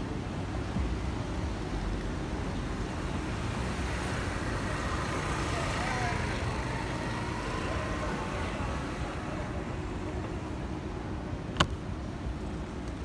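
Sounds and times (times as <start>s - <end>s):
street traffic rumble: 0.0s - 13.0s
motor scooter passing: 2.8s - 10.8s.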